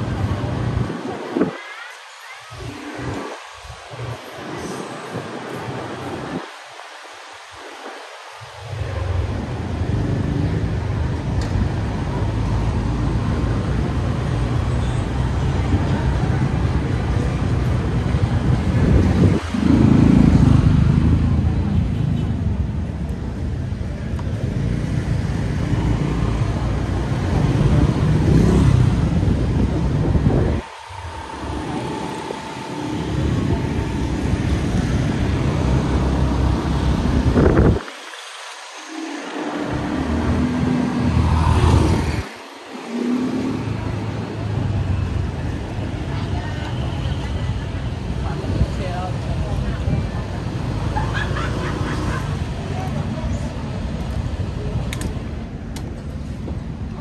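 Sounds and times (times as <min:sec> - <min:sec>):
street traffic: 0:00.0 - 0:57.0
scooter engine rumble: 0:08.5 - 0:57.0
wind rumble on microphone: 0:15.5 - 0:38.2
motorcycle engine: 0:25.8 - 0:37.7.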